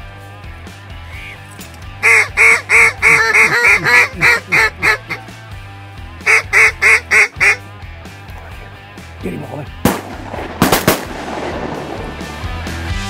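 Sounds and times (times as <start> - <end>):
background music with low tones: 0.0 - 13.0
duck call quacking: 2.0 - 5.3, 6.2 - 7.7.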